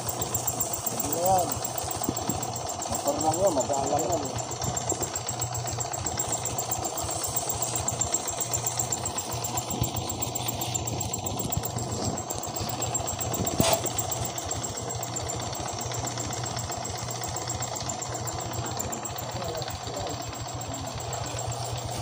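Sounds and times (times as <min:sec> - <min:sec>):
motorcycle engine idling: 0:00.0 - 0:22.0
sharp click: 0:13.4 - 0:14.0.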